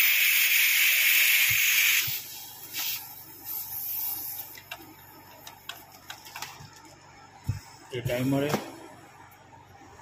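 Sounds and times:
compressed air hissing: 0.0s - 4.5s.

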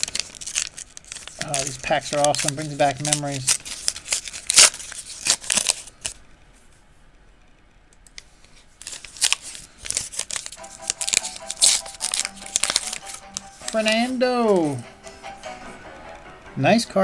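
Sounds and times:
plastic wrapper crinkling and tearing: 0.0s - 6.2s, 8.8s - 14.8s.

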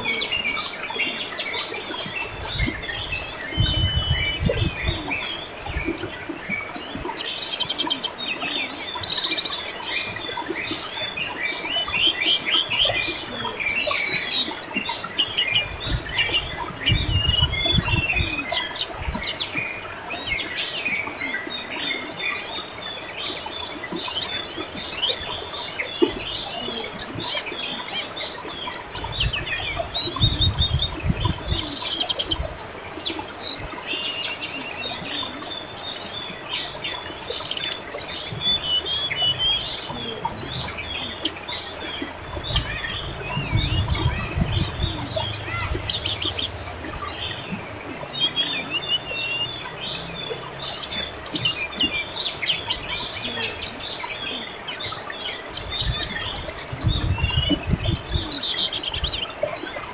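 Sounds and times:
river babbling: 0.0s - 56.7s
birds chirping and trilling: 0.0s - 59.9s
low rumble: 39.1s - 51.7s.

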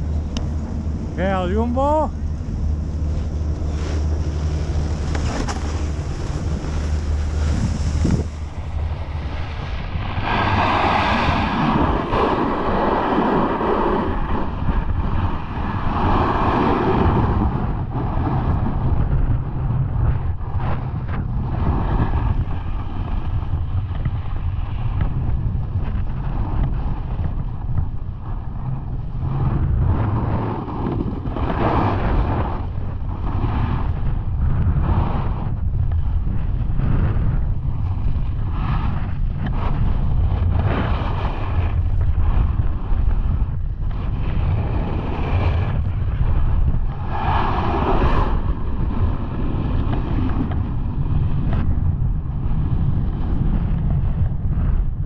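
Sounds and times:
wind buffeting microphone: 0.0s - 55.0s
snowboard edge scraping snow: 2.2s - 17.6s, 29.3s - 34.0s, 36.8s - 50.7s.

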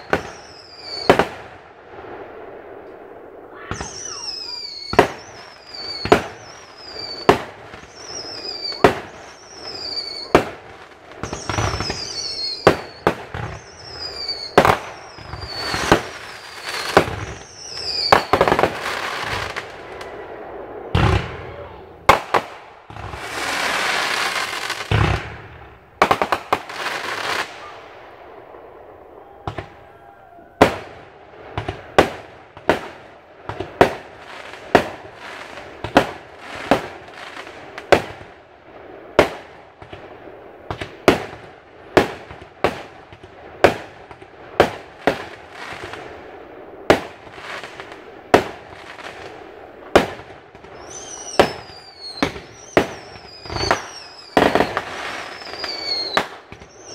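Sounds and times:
fireworks crackling: 0.0s - 56.9s
fireworks sharp bangs: 0.0s - 56.9s
fireworks boom: 3.4s - 6.6s, 20.7s - 23.3s, 24.9s - 26.4s.

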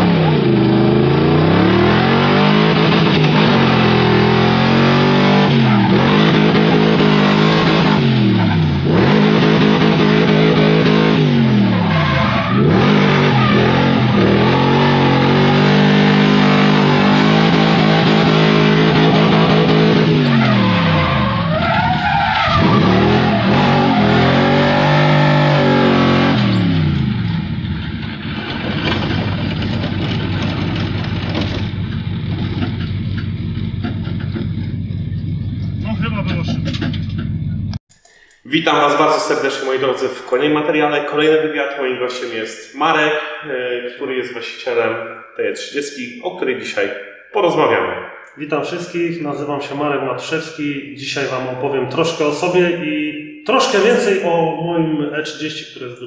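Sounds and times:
car engine revving: 0.0s - 37.8s
tyres screeching: 1.0s - 26.7s.

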